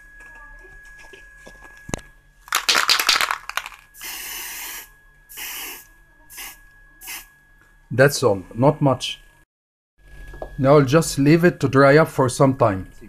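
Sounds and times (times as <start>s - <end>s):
spray can rattling: 2.5s - 4.6s
spray paint hissing: 2.6s - 7.3s.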